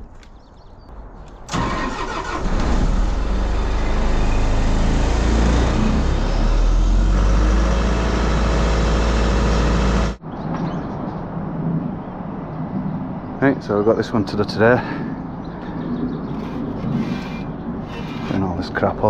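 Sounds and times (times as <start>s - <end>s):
compressor engine starting and droning: 1.5s - 10.2s.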